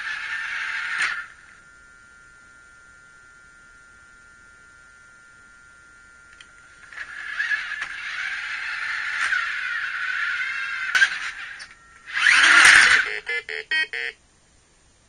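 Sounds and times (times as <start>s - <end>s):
toy electric motors whirring: 0.0s - 1.4s, 6.8s - 13.2s
faint electrical hum: 0.0s - 15.0s
click: 6.3s - 6.6s.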